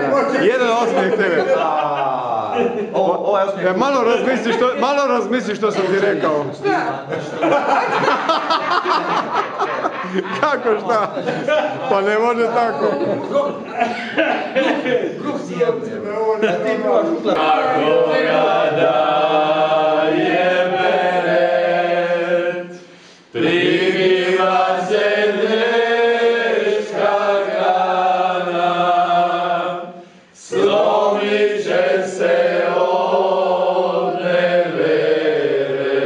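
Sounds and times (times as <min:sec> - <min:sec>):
group singing unaccompanied: 0:17.2 - 0:36.0
singers breathing: 0:22.8 - 0:23.4, 0:29.9 - 0:30.4.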